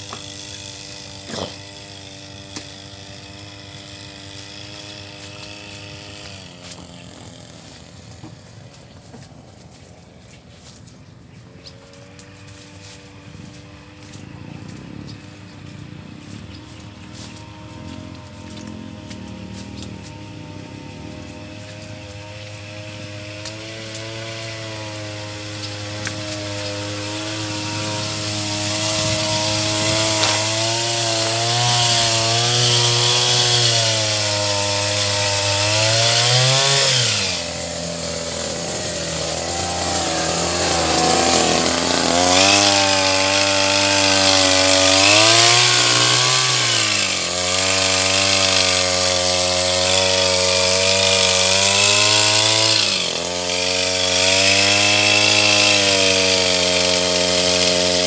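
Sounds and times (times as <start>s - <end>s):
sprayer engine running at high revs: 12.3s - 58.0s.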